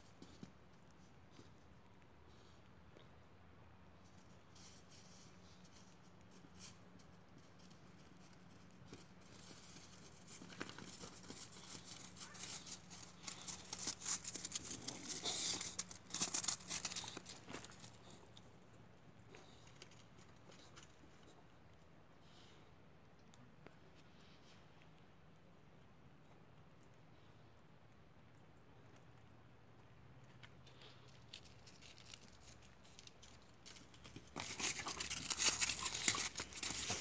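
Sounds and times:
crunching on crusty snow: 4.2s - 18.4s, 30.6s - 37.0s.

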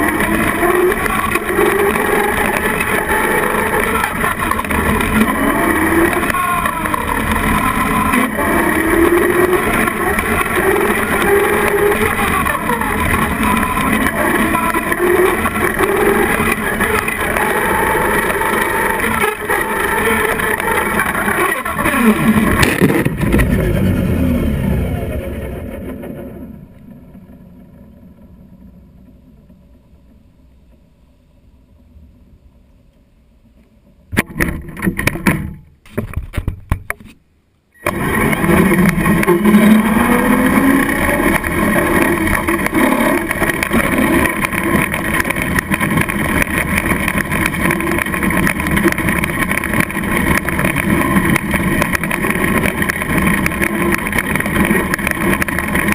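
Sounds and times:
rc truck motor whine: 0.0s - 30.8s, 37.8s - 55.9s
knocks and rubbing on camera: 34.2s - 37.2s.

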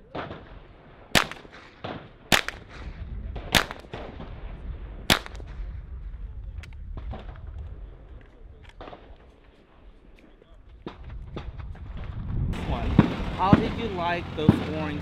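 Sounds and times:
fainter gunshots: 0.0s - 4.5s, 5.1s - 5.6s, 12.6s - 15.0s
rifle shots with echo: 0.0s - 5.8s, 8.6s - 9.4s, 10.8s - 15.0s.

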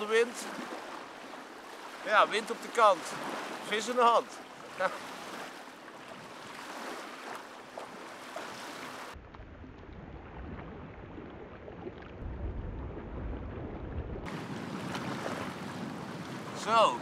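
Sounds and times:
small waves washing on shore: 0.0s - 9.2s, 9.8s - 17.0s
wind buffeting microphone: 9.2s - 17.0s.

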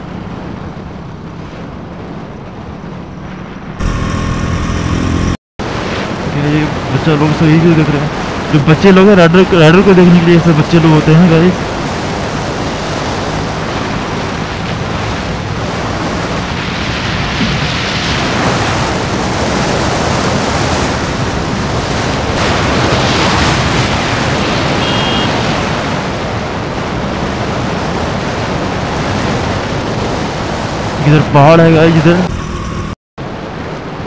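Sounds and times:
faint motorcycle engine: 3.8s - 5.4s
wind rushing over microphone: 11.4s - 34.0s.

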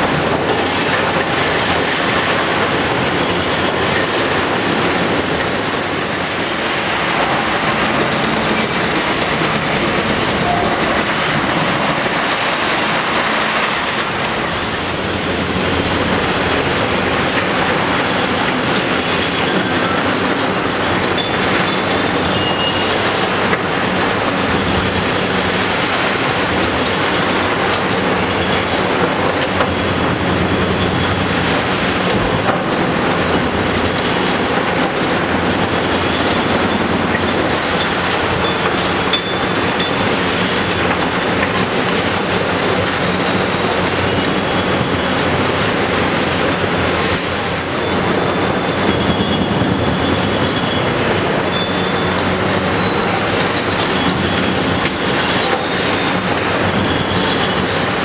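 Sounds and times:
excavator diesel engine: 0.0s - 58.0s.

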